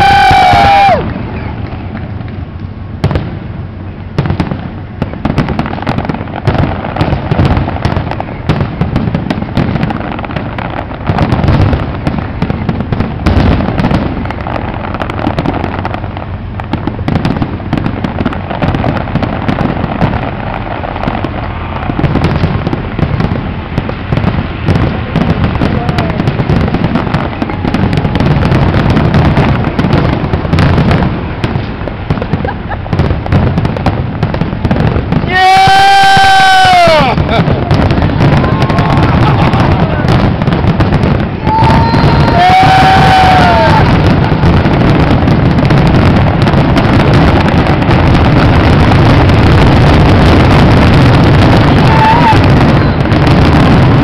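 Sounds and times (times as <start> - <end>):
fireworks booming: 0.0 - 54.0.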